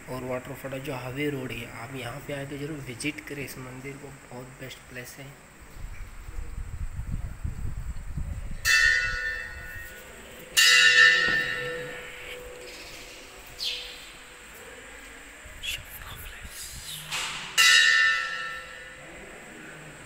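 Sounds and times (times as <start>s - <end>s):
temple bell ringing: 8.6s - 12.6s, 17.6s - 19.2s.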